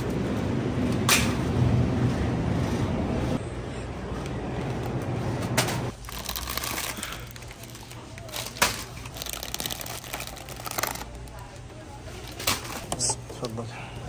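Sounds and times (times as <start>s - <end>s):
plastic wrappers crinkling: 5.9s - 11.5s.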